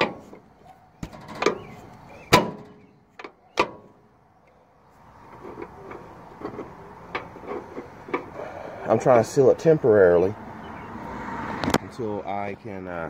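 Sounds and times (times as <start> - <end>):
sharp knocks and clunks from handling: 1.0 - 4.0.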